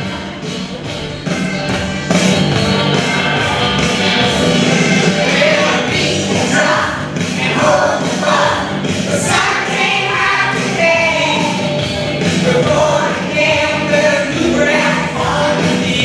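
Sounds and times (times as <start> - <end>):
instrumental accompaniment: 0.0 - 16.0
children's choir singing: 3.0 - 11.6, 12.3 - 16.0.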